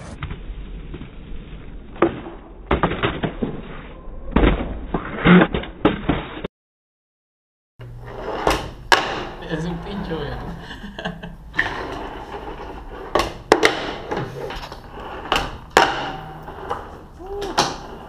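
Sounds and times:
skateboard wheels rolling: 0:11.5 - 0:18.0.

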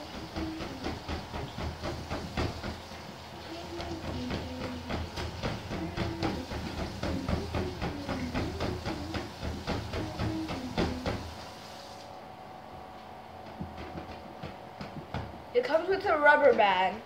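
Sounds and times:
person humming: 0:00.0 - 0:01.0, 0:03.4 - 0:05.0, 0:05.7 - 0:11.2.

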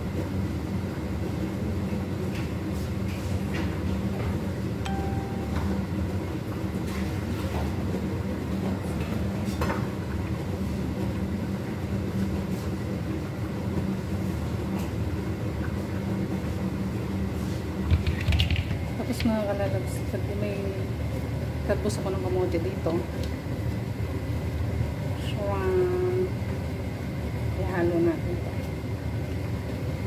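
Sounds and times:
range hood fan humming: 0:00.0 - 0:30.0.

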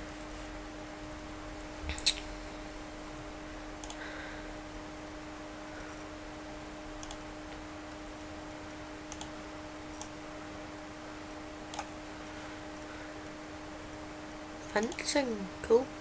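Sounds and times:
steady low hum: 0:00.0 - 0:16.0
computer mouse clicking: 0:03.8 - 0:04.0, 0:07.0 - 0:07.2, 0:09.1 - 0:09.4, 0:11.7 - 0:11.9.

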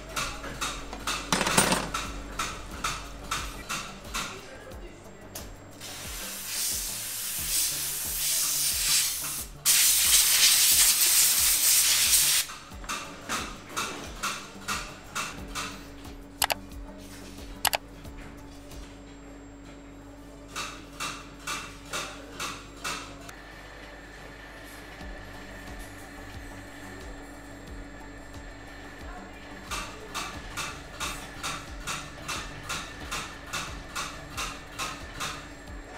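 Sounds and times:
steam cleaner nozzle hissing: 0:05.8 - 0:12.5.

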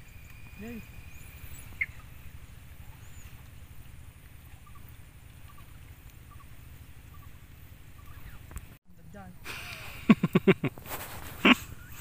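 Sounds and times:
bird chirps: 0:00.0 - 0:08.6
steady low rumble: 0:00.0 - 0:10.7.

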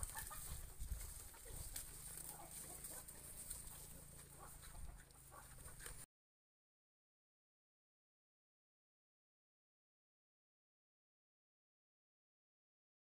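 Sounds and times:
leaves rustling: 0:00.0 - 0:06.0
pigs rooting and chewing: 0:00.0 - 0:06.1.

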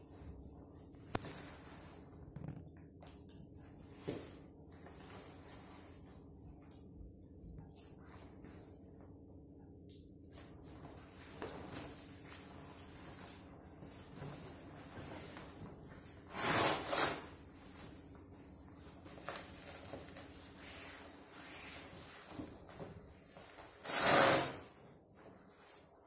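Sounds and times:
fabric rustling and swishing: 0:03.7 - 0:06.4, 0:10.4 - 0:26.0
fabric rasping: 0:16.3 - 0:17.4, 0:23.8 - 0:24.8.

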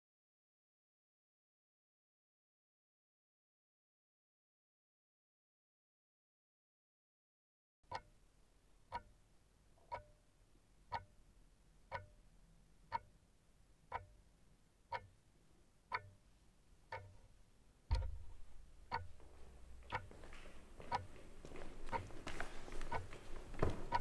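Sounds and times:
clock ticking: 0:07.8 - 0:08.2, 0:08.9 - 0:10.3, 0:10.9 - 0:11.2, 0:11.9 - 0:13.2, 0:13.8 - 0:14.3, 0:14.9 - 0:15.3, 0:15.9 - 0:16.3, 0:16.9 - 0:20.2, 0:20.8 - 0:21.1, 0:21.9 - 0:22.2, 0:22.8 - 0:24.0.

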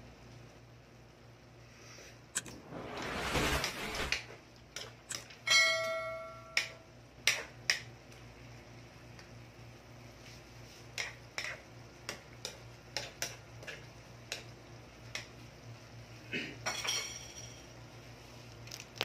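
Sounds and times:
low steady hum: 0:00.0 - 0:19.0
ringing clink: 0:05.5 - 0:06.8.

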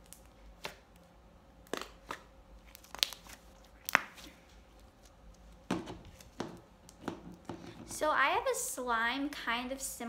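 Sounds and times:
slime snapping and crackling: 0:01.6 - 0:04.2.

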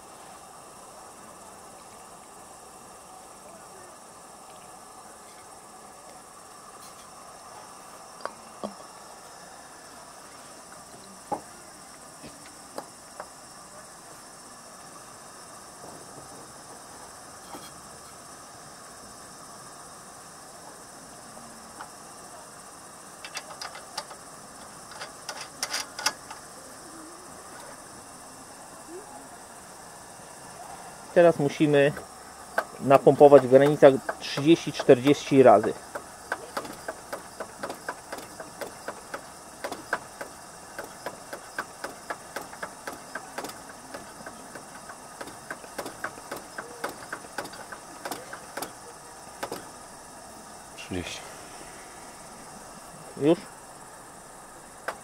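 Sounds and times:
crickets chirring: 0:00.0 - 0:55.0.

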